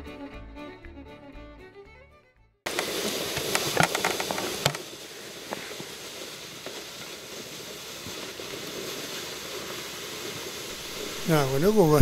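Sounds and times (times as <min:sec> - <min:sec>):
wind rushing: 0:10.7 - 0:12.0.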